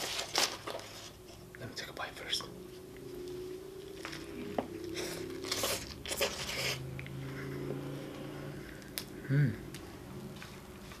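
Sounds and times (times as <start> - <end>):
crunchy chews: 3.8 - 7.1
biting and chewing burger: 3.8 - 7.2.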